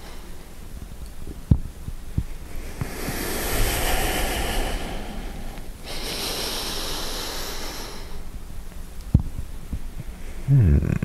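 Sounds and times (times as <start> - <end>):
man breathing slowly: 0.0 - 0.6, 2.3 - 8.4.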